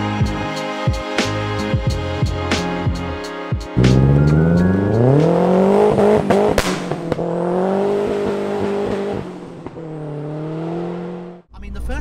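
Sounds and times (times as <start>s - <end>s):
car engine accelerating: 3.8s - 11.5s.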